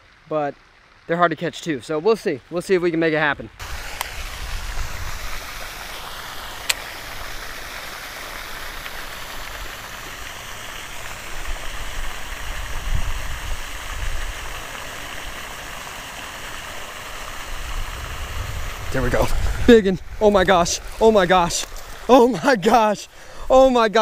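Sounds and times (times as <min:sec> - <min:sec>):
fountain splashing: 0:00.0 - 0:24.0.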